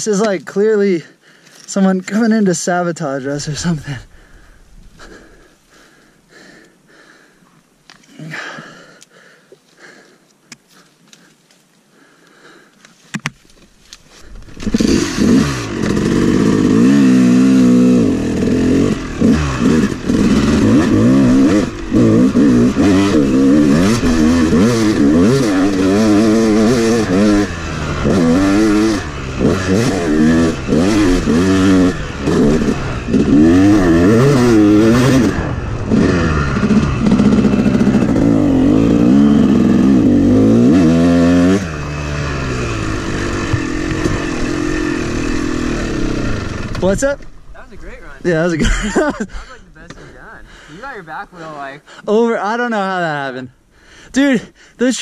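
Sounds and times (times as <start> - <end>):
dirt bike engine revving: 14.2 - 50.8.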